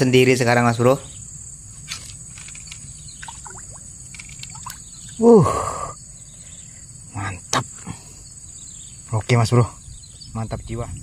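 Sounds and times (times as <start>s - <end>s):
high insect chirring: 0.0s - 11.0s
faint clicks: 1.9s - 4.8s.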